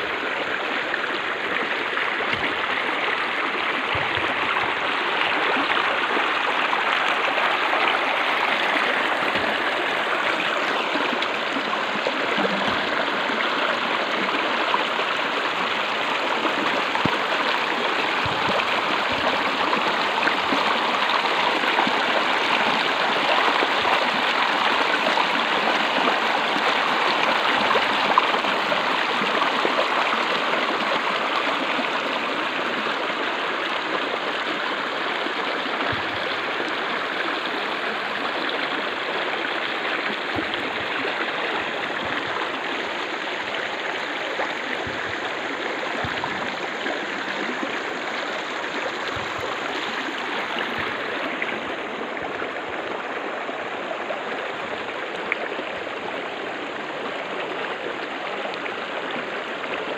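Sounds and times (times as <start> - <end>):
stream rushing over stones: 0.0 - 59.9.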